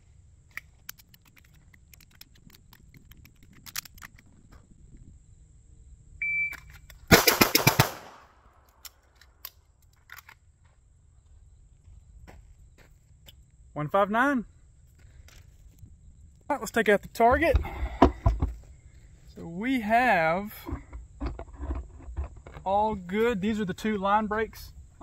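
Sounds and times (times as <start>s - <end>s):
faint gear clicks: 0.5s - 4.3s
shot timer beep: 6.2s - 6.6s
rapid pistol shots: 7.1s - 8.3s.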